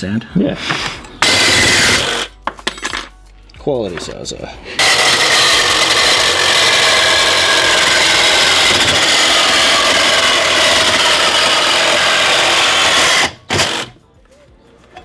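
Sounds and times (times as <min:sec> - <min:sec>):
power tool cutting metal: 0:01.2 - 0:02.3, 0:04.8 - 0:14.0.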